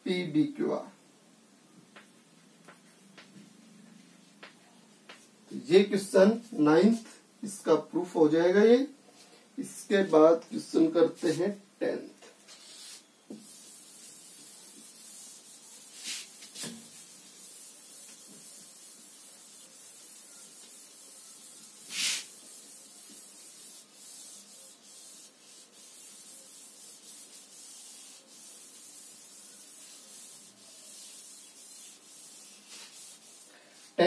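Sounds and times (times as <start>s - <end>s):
duster rubbing on chalkboard: 12.5s - 34.0s.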